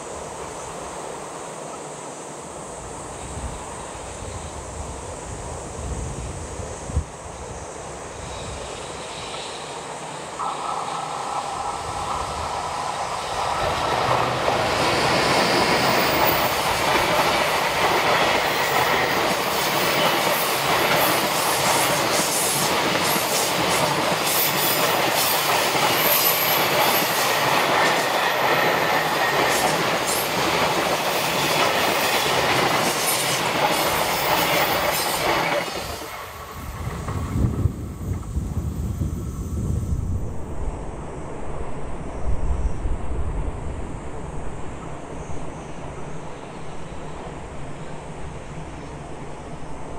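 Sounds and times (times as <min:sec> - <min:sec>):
freight train rumble: 0:00.0 - 0:49.9
steady tone of approaching train: 0:00.0 - 0:49.9
wheels clickety-clack over rail joints: 0:12.3 - 0:38.7.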